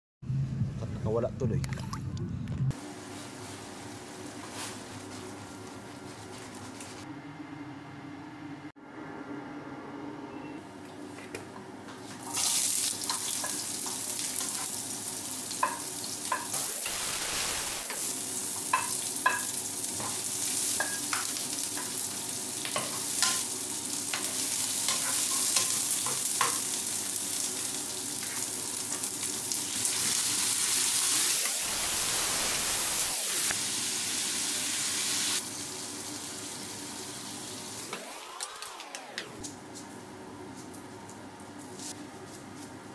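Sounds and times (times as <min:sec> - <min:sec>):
vegetables sizzling in hot oil: 0:12.3 - 0:39.1.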